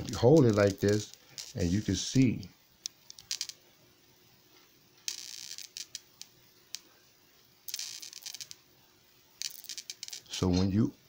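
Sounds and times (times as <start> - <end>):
foil rustling: 0.0 - 2.0
faint steady hum: 0.0 - 11.0.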